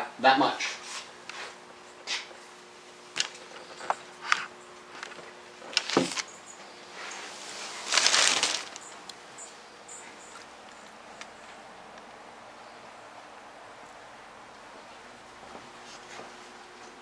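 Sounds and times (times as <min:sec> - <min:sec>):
rustling scrape: 0:06.9 - 0:09.0.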